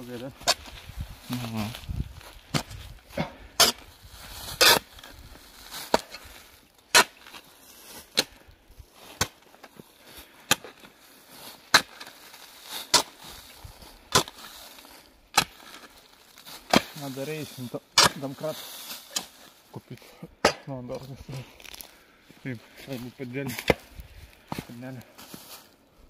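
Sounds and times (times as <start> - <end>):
shovel chopping into soil: 2.5 - 3.8, 4.5 - 5.1, 5.8 - 6.2, 6.9 - 7.4, 8.0 - 8.4, 9.1 - 9.4, 10.4 - 10.8, 11.7 - 13.2, 14.1 - 14.5, 15.3 - 15.9, 16.5 - 17.1, 18.0 - 19.4, 23.4 - 23.9.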